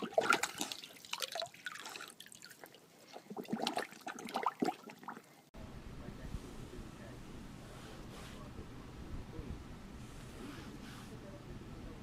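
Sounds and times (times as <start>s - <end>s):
dog lapping and splashing water: 0.0s - 5.2s.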